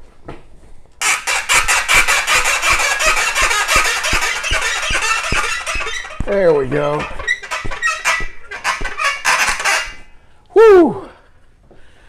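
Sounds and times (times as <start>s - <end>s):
metal tube squealing and grinding: 1.0s - 10.1s.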